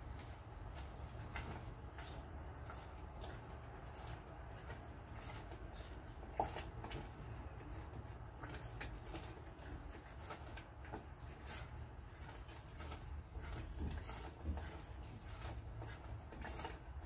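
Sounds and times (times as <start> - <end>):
spatula scraping a saucepan: 11.3 - 17.0.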